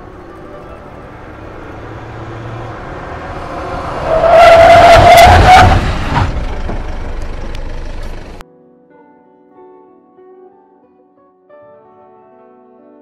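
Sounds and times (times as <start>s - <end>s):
pickup truck passing: 0.0s - 8.4s
tyres squealing: 2.8s - 6.6s.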